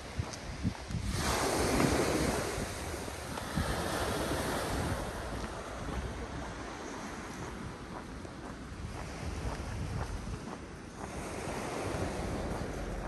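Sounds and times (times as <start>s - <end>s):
waves washing over pebbles: 0.0s - 7.8s
wind rumble on microphone: 0.0s - 13.0s.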